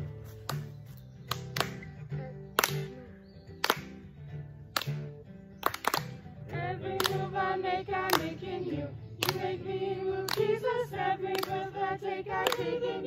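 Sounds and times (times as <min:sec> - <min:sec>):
women singing together: 0:06.5 - 0:13.0.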